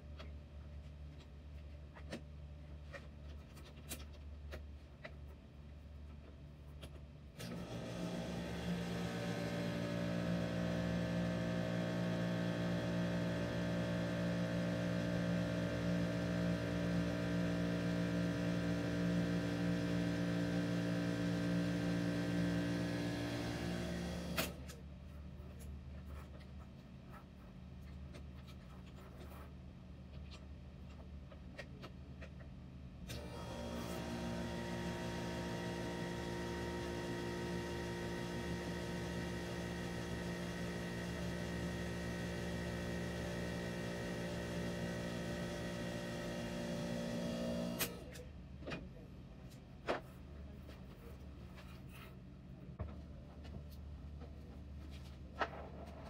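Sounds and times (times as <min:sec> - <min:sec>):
electric motor humming: 0:07.5 - 0:24.6, 0:33.1 - 0:48.0.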